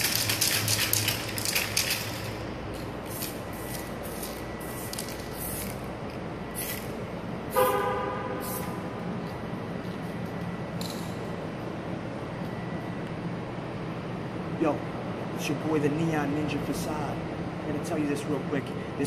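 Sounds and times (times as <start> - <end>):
spray can mixing ball rattling: 0.0 - 5.8
horn-like honk: 7.5 - 8.4.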